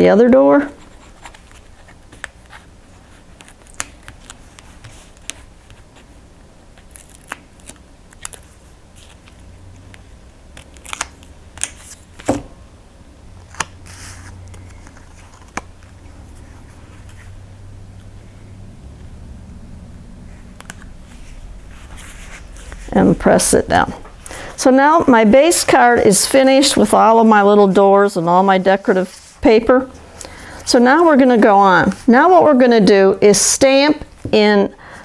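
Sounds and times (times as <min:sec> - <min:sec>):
paper and card clicks and taps: 0:03.4 - 0:05.8, 0:10.6 - 0:12.5.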